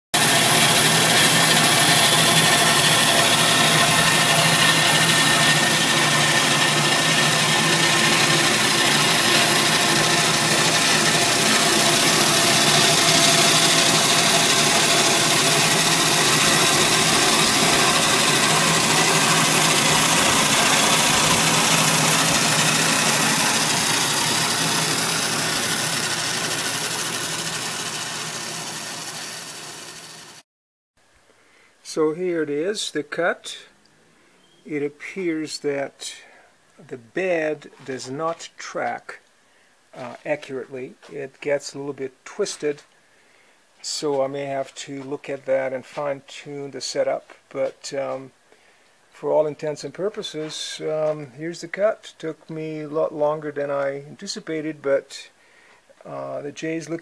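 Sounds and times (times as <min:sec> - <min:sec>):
stone-cutting saw whirring: 0:00.2 - 0:30.4.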